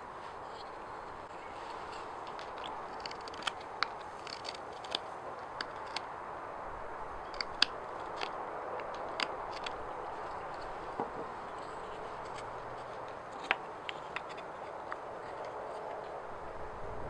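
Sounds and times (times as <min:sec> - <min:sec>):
knife carving wood: 0:00.4 - 0:06.1, 0:07.2 - 0:16.2.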